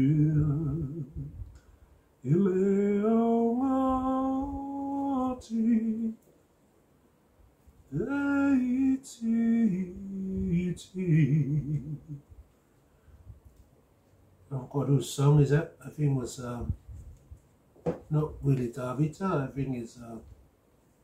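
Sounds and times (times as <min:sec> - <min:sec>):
man singing unaccompanied: 0:00.0 - 0:01.5, 0:02.2 - 0:06.2, 0:07.9 - 0:12.2, 0:14.5 - 0:16.8.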